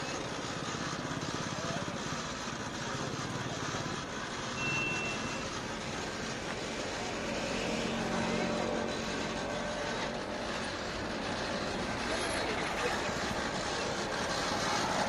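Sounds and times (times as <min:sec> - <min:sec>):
traffic noise: 0:00.0 - 0:15.0
short high beep: 0:04.6 - 0:05.5.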